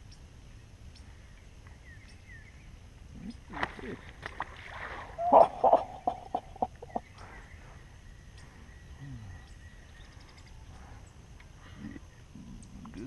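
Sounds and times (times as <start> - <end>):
fish splashing at water surface: 3.5 - 6.0.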